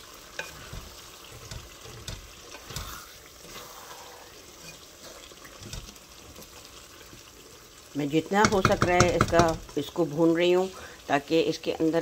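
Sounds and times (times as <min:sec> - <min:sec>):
faint frying sizzle: 0:00.0 - 0:12.0
wooden spatula scraping pot: 0:00.2 - 0:03.8, 0:04.5 - 0:07.2
spatula knocking against pot: 0:08.4 - 0:09.7.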